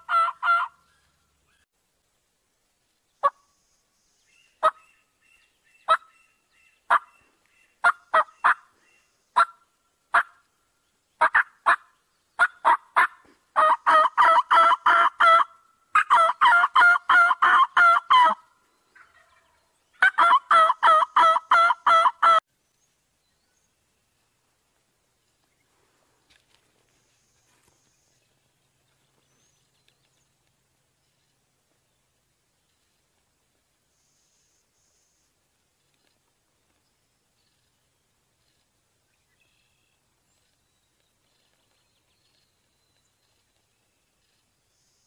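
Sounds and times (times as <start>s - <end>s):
turkey clucking: 0.0s - 0.8s, 5.9s - 6.1s, 7.8s - 8.7s, 11.2s - 18.4s, 19.0s - 22.4s
turkey yelping: 0.0s - 0.8s, 5.9s - 6.1s, 6.9s - 7.1s, 7.8s - 8.6s, 11.2s - 18.4s, 19.0s - 22.4s.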